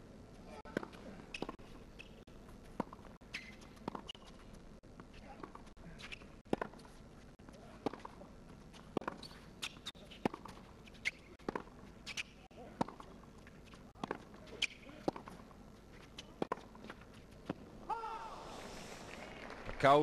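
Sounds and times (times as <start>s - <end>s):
tennis ball bouncing on court: 0.7s - 4.4s, 5.4s - 6.9s, 7.8s - 15.4s, 16.2s - 17.6s
tennis ball struck by rackets: 11.4s - 13.0s.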